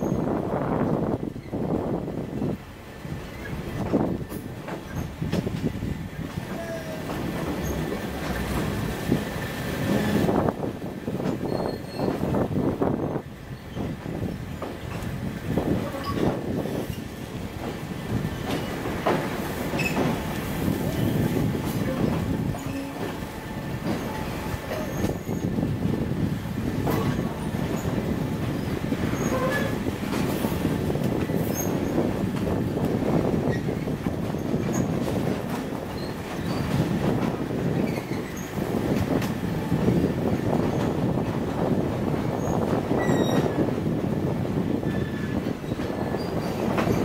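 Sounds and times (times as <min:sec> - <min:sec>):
train wheels rumbling on rails: 0:00.0 - 0:47.0
faint high wheel squeal: 0:11.4 - 0:12.2, 0:43.0 - 0:43.5.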